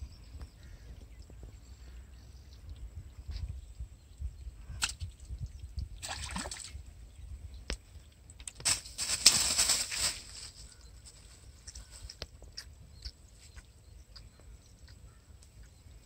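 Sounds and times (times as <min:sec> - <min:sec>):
grass rustling: 0:08.5 - 0:12.6.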